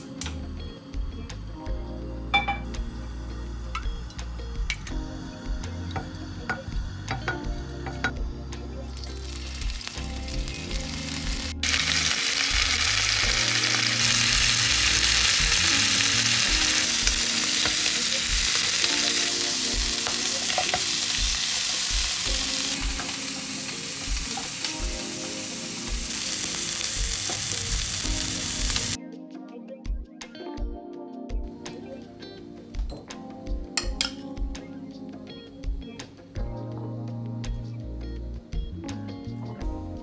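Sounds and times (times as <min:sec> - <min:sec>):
background music with steady beat: 0:00.0 - 0:40.0
shrimp sizzling in hot oil: 0:08.9 - 0:29.0.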